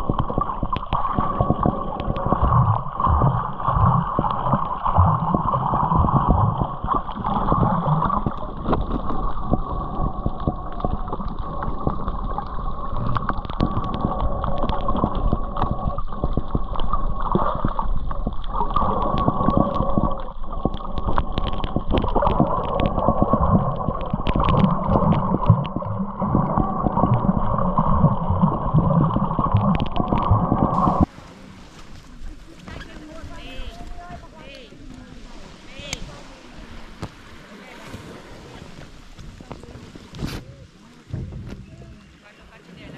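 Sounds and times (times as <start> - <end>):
water splashing against hull: 0.0 - 42.9
wind on microphone: 37.8 - 42.9.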